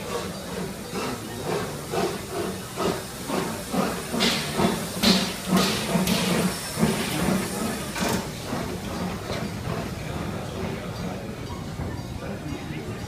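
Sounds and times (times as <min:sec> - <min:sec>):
hissing steam bursts: 0:00.0 - 0:08.7
steam locomotive chuffing: 0:00.0 - 0:13.0.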